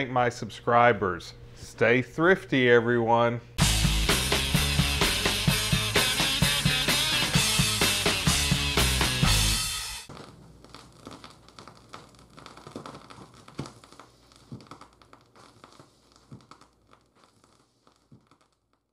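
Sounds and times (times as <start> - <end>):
music: 3.6 - 10.1
vinyl record pops: 3.6 - 18.9
vinyl crackle and clicks: 10.1 - 18.9.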